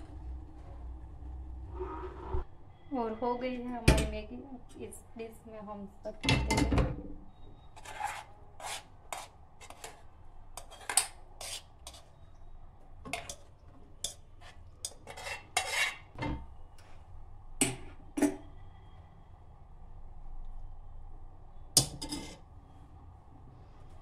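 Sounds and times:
spoon scraping a cooking pan: 0:07.7 - 0:10.0, 0:10.6 - 0:12.1, 0:13.1 - 0:16.2.

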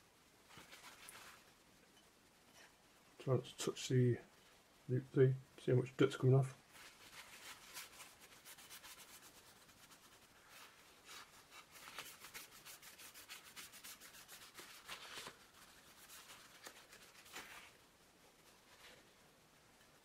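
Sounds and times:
paper towel wiping glass: 0:06.7 - 0:19.2.

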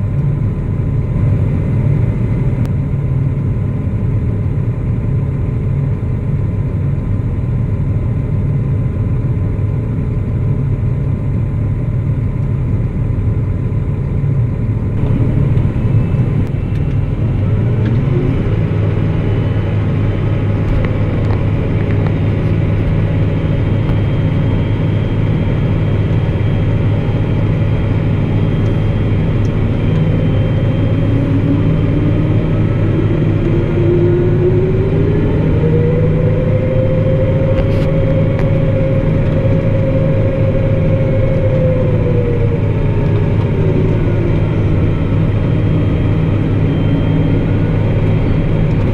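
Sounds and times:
tractor diesel engine running: 0:10.1 - 0:48.9
thin rising whine: 0:14.8 - 0:48.9.

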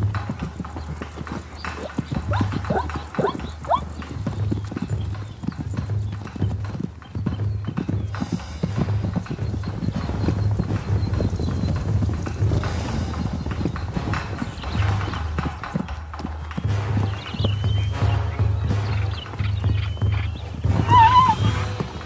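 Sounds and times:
zebra hooves thudding: 0:00.0 - 0:22.0
zebra squeals: 0:01.6 - 0:04.1, 0:19.0 - 0:22.0.

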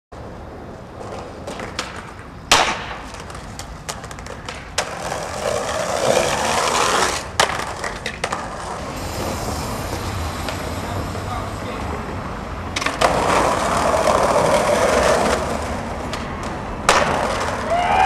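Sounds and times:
skateboard impact: 0:00.2 - 0:10.7, 0:12.1 - 0:18.0
skateboard wheels rolling: 0:00.2 - 0:18.0
skateboard clacks: 0:00.8 - 0:11.1, 0:11.8 - 0:18.0.

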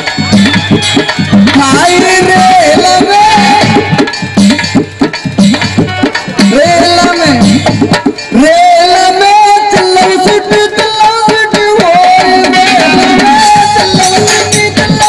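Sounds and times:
hand drum beat: 0:00.0 - 0:15.0.

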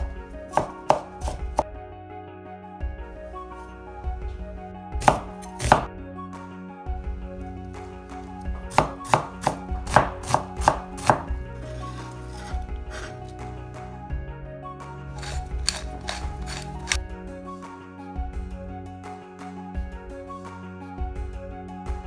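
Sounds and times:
cleaver chopping on wooden board: 0:00.5 - 0:01.6, 0:05.0 - 0:05.9, 0:08.7 - 0:13.3, 0:15.2 - 0:17.0.

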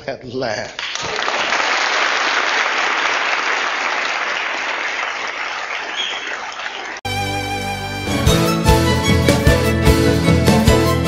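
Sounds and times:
audience applauding: 0:00.8 - 0:07.0
instrumental music: 0:07.1 - 0:11.0.

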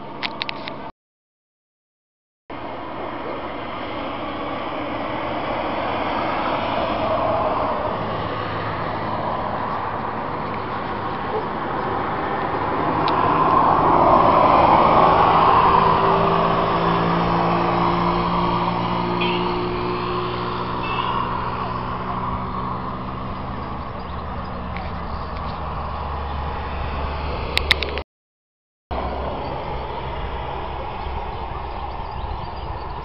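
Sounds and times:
road traffic rush: 0:00.0 - 0:00.9, 0:02.5 - 0:28.1, 0:28.9 - 0:33.0
low engine hum: 0:02.5 - 0:28.0
vehicle passing: 0:02.6 - 0:28.0, 0:28.9 - 0:33.0.

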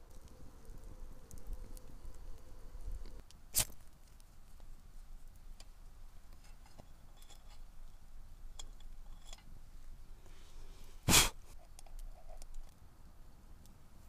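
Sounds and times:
match being struck: 0:03.0 - 0:04.2
small metallic clicks and ticks: 0:05.6 - 0:09.6, 0:11.6 - 0:12.8.

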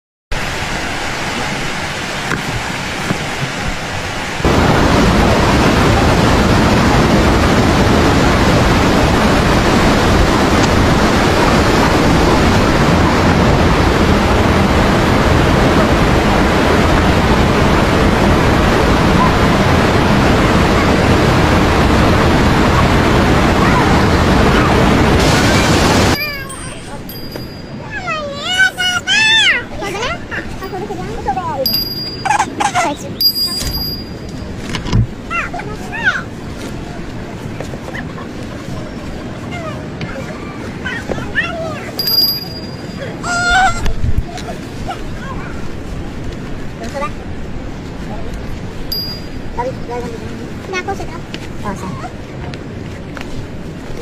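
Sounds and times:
river rushing: 0:00.3 - 0:54.0.

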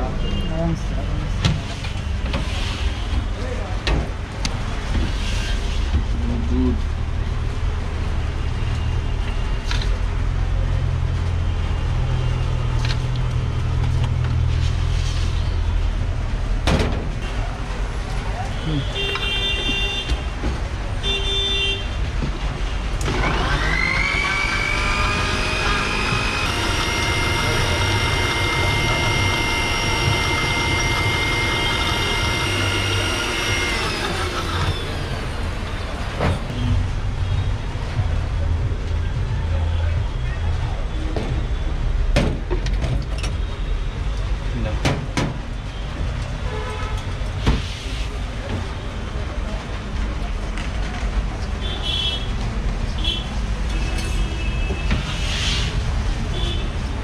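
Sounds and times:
street noise: 0:00.0 - 0:57.0
blender motor whine: 0:23.1 - 0:35.3
low mechanical hum: 0:23.1 - 0:36.4.

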